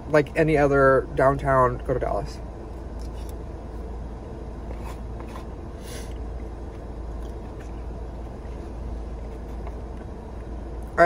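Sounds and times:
low hum in car cabin: 0.0 - 11.0
person chewing food: 4.6 - 11.0.

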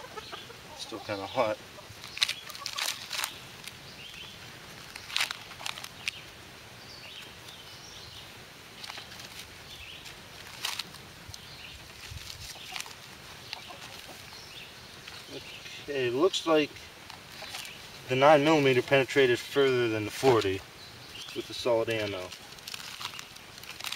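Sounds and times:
faint bird calls: 0.0 - 9.1, 12.4 - 18.7
paper pages rustling: 2.0 - 3.8, 4.7 - 6.2, 8.8 - 11.1, 11.8 - 14.2, 21.3 - 23.9.

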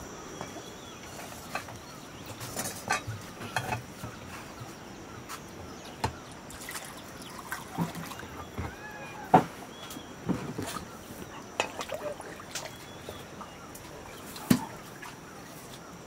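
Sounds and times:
water splashing and trickling: 0.0 - 16.0
metal pots knocking: 1.5 - 4.2.

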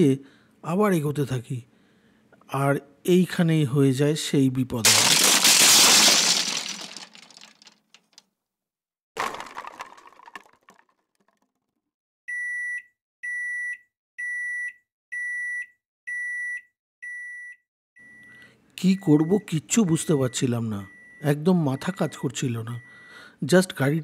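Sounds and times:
drone crashing into tree: 4.9 - 7.6.

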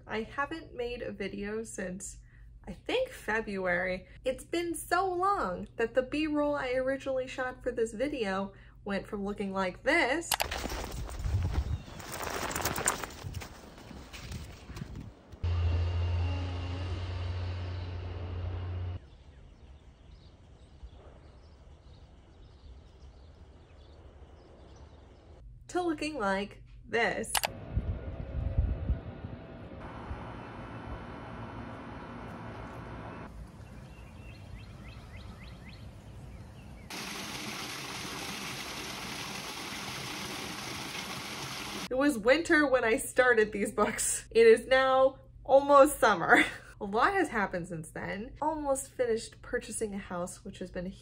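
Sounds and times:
outdoor background noise: 0.0 - 51.0
running water rushing: 36.9 - 41.9.

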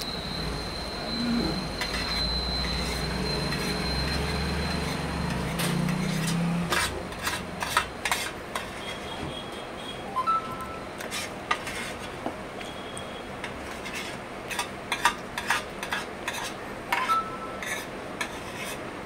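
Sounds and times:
spoon scraping steel plate: 1.1 - 9.2, 11.0 - 12.2, 13.4 - 18.8.

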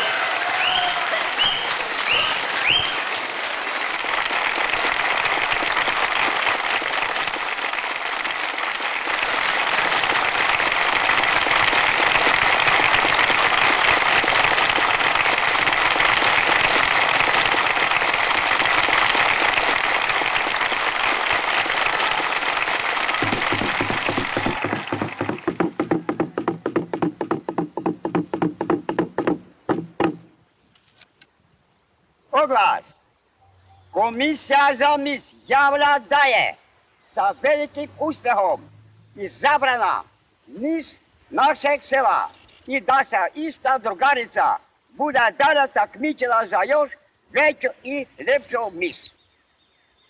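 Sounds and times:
audience applauding: 0.0 - 27.4
short high whistles: 0.6 - 3.1.

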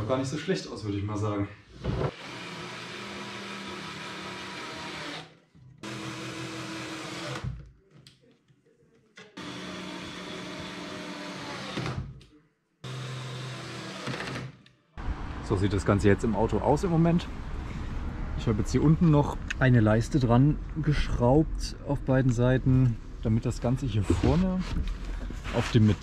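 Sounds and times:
drill motor whining: 2.1 - 7.5, 9.4 - 12.0, 12.8 - 14.5.

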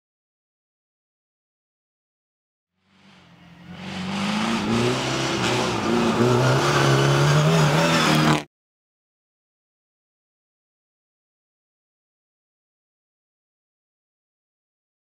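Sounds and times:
rally car engine running hard: 2.8 - 8.5
road noise: 2.8 - 8.5.

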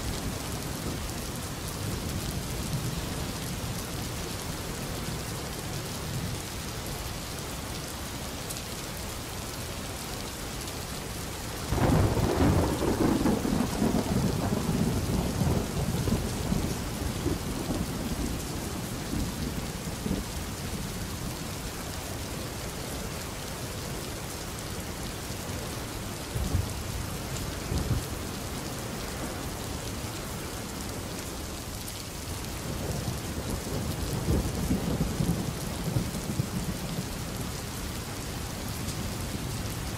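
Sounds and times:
steady rain hissing: 0.0 - 39.9
thunder rumbling: 11.7 - 20.3.

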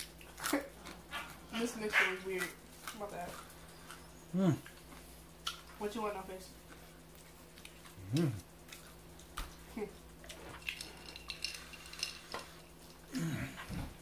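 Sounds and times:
short vocal sound: 8.0 - 8.4.

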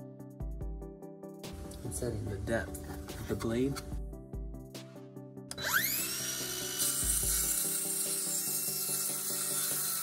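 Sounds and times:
background music: 0.0 - 10.0
circular saw whining: 5.5 - 10.0
saw blade cutting wood: 5.5 - 10.0.

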